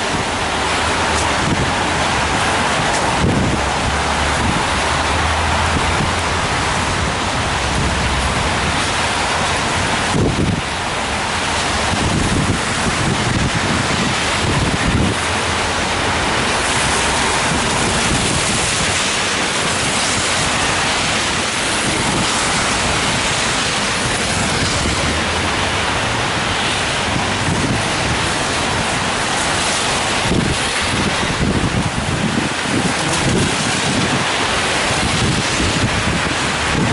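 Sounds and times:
car tyres on wet road: 0:00.0 - 0:36.9
rain on an umbrella: 0:00.0 - 0:36.9.

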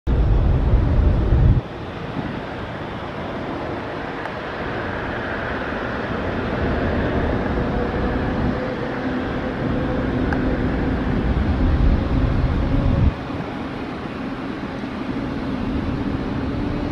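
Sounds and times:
loud low rumble: 0:00.1 - 0:02.4, 0:06.0 - 0:13.4
distant jet engines rushing: 0:00.1 - 0:16.9.

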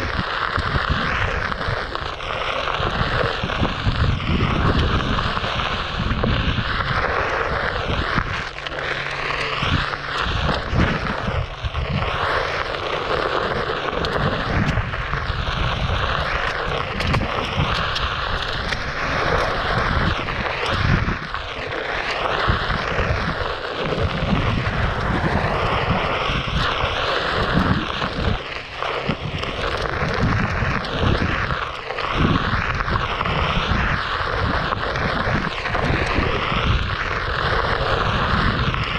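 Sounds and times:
tyre rumble on dirt trail: 0:00.0 - 0:38.9
wind buffeting microphone: 0:00.0 - 0:38.9.

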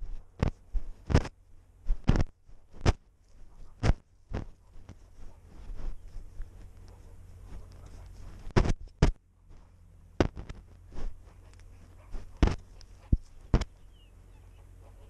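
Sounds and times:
knocks and crunches in snow: 0:00.0 - 0:13.9.

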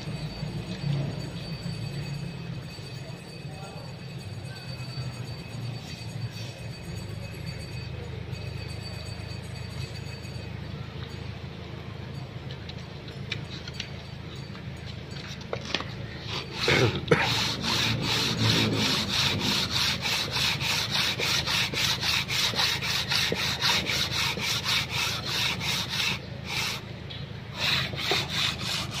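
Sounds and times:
sanding block scraping metal: 0:16.3 - 0:26.9, 0:27.5 - 0:29.0.

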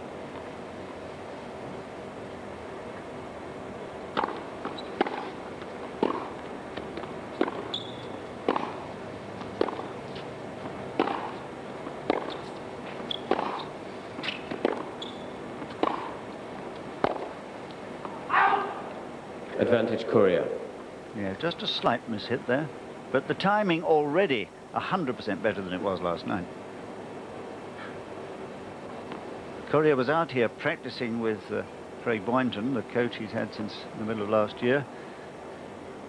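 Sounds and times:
tennis ball bounces: 0:04.1 - 0:17.4
tennis racket strokes: 0:04.2 - 0:05.4, 0:06.0 - 0:17.4
sneaker squeaks on court: 0:04.7 - 0:05.3, 0:07.5 - 0:08.7, 0:12.1 - 0:16.1.

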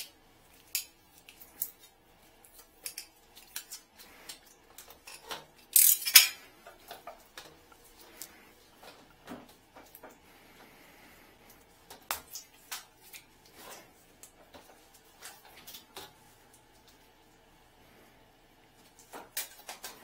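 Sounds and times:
tools and hose clicking: 0:05.0 - 0:06.4.

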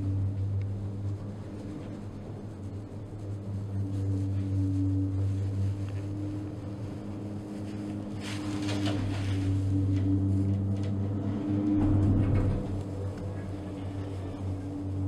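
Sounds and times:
low hum inside gondola cabin: 0:00.0 - 0:15.0
cabin rattling past lift tower: 0:08.1 - 0:15.0.

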